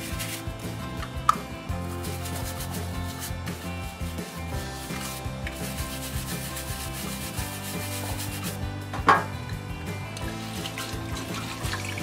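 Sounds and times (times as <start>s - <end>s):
brush scrubbing plastic: 0.0s - 8.7s.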